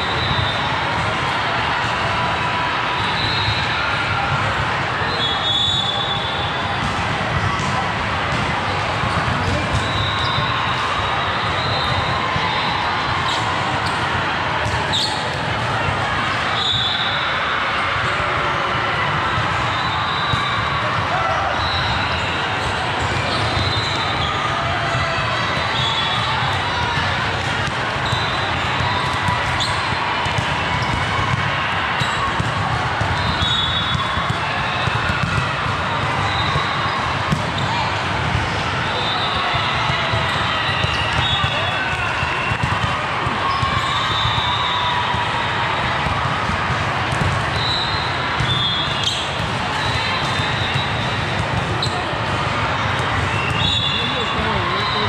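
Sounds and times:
balls bouncing with low thuds: 6.5s - 10.5s, 32.2s - 38.7s, 46.0s - 53.7s
basketball bouncing on court: 25.5s - 38.6s, 39.8s - 44.4s, 46.0s - 54.6s.

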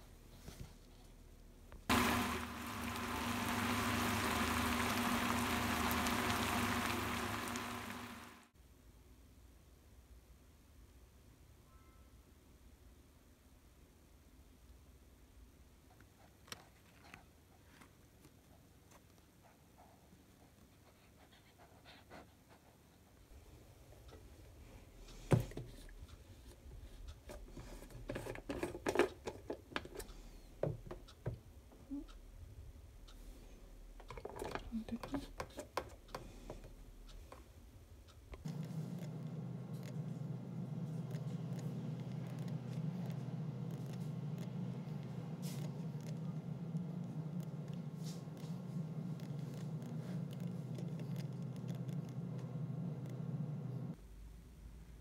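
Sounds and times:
low steady hum: 0.0s - 8.6s, 36.1s - 55.0s
meat sizzling in a frying pan: 1.9s - 8.4s.

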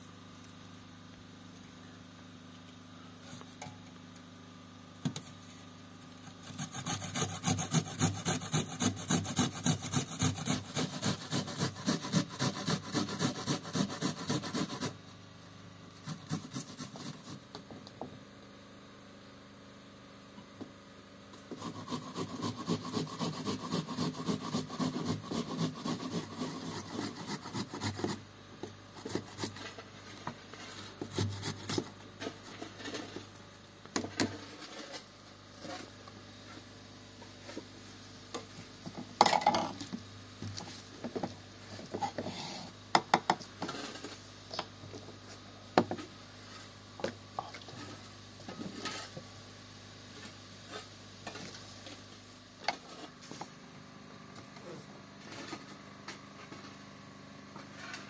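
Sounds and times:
utensil scraping strokes: 6.3s - 15.0s, 15.9s - 17.5s, 21.5s - 28.2s, 29.0s - 33.3s.

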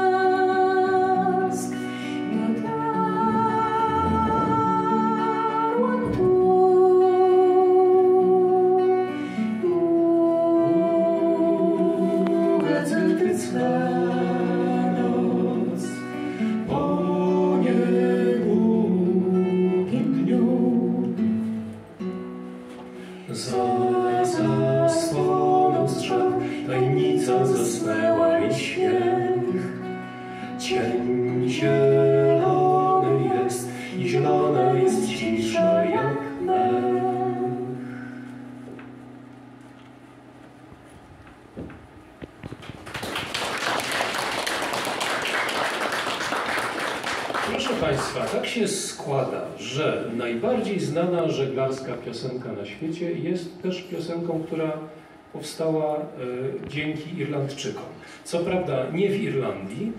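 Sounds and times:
woman singing with vibrato: 0.0s - 21.2s, 23.4s - 29.9s, 30.6s - 37.9s
acoustic guitar: 0.0s - 59.9s.

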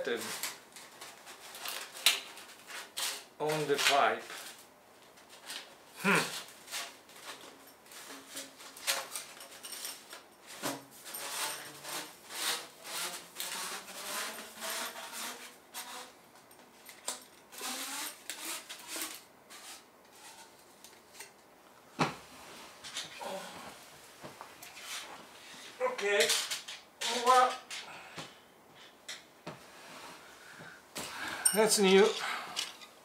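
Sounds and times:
metal rubbing and scraping: 6.1s - 16.2s, 17.5s - 21.2s
light clinking of metal: 31.4s - 32.9s.

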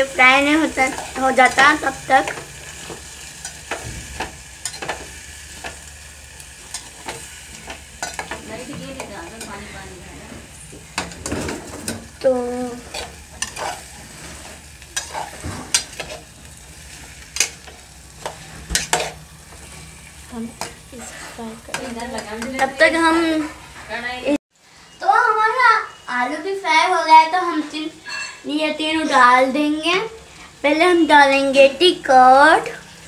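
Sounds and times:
potatoes sizzling in oil: 0.0s - 33.0s
ladle scraping metal pot: 12.8s - 16.2s.

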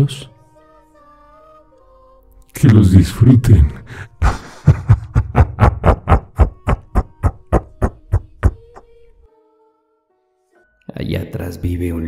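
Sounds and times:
rhythmic percussive hits: 4.9s - 8.8s.

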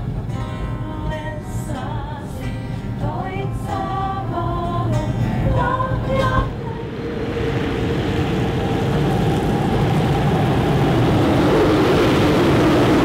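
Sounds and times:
low rumble: 0.0s - 13.0s
woman singing with music: 0.3s - 7.2s.

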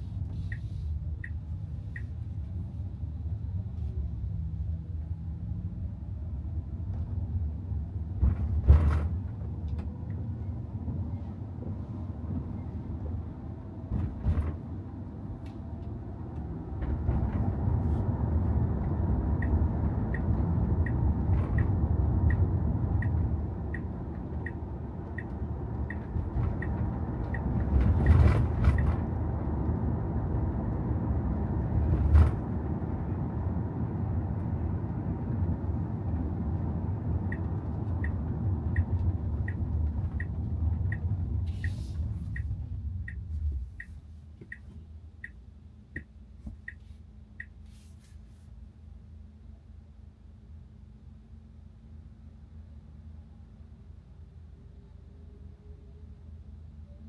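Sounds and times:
road and tyre rumble: 0.0s - 57.0s
light regular tick: 36.5s - 47.6s.

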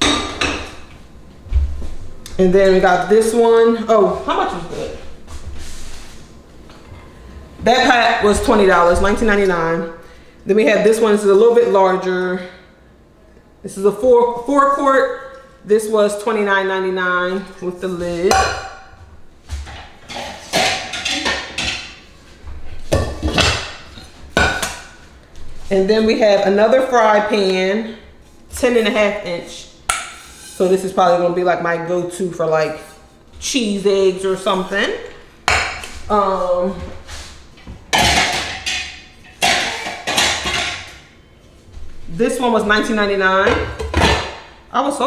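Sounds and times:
metal pots and pans clanking: 0.0s - 0.8s, 19.6s - 22.0s, 22.8s - 25.0s, 37.9s - 41.0s, 42.8s - 44.5s
metal pots and lids clinking: 20.1s - 21.9s, 37.9s - 40.9s.

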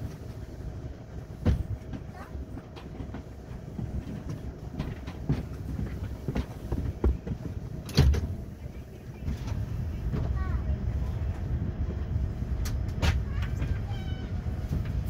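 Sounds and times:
train rumbling inside carriage: 0.0s - 15.0s
knocks and thumps: 1.4s - 8.4s.

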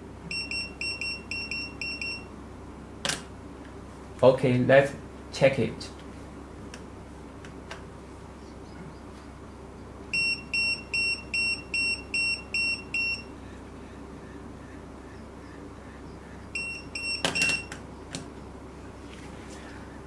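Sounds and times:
pager beeping: 0.3s - 2.3s, 10.1s - 13.3s, 16.6s - 17.7s.

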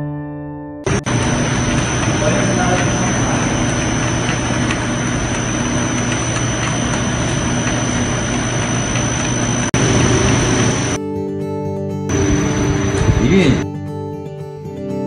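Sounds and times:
machinery hum and rush: 0.9s - 11.0s, 12.1s - 13.6s
thin high whine: 0.9s - 11.0s, 12.1s - 13.6s.

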